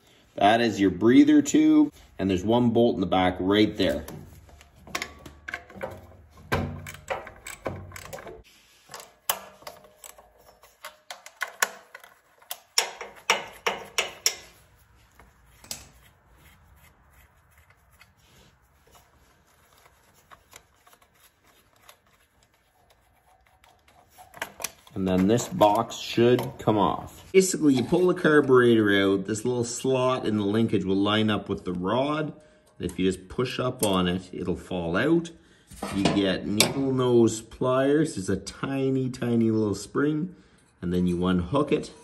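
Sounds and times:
metallic clicks of hand tools: 6.8s - 14.6s.

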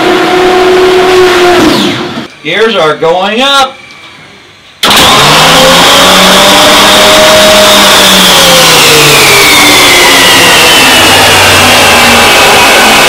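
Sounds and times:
landing gear motor whining: 4.8s - 13.0s.

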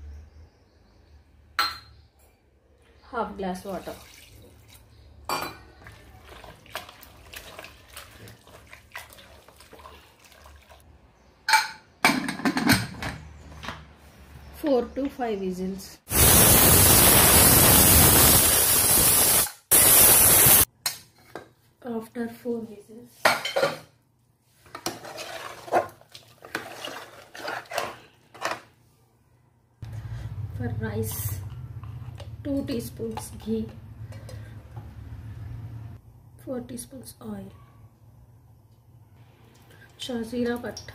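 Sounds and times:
wet squelching of hand mixing: 3.7s - 5.0s, 5.8s - 10.9s, 25.0s - 28.1s
metal spoon scraping metal pot: 24.8s - 28.6s.

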